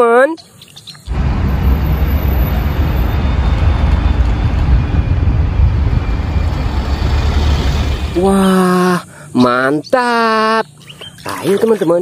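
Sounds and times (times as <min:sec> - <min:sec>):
road noise: 0:00.4 - 0:10.0
bus engine rumble: 0:01.1 - 0:08.6.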